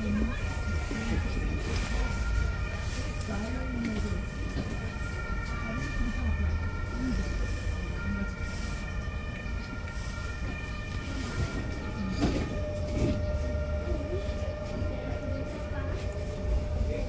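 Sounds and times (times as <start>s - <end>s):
tram rumble with whine: 0.0s - 17.0s.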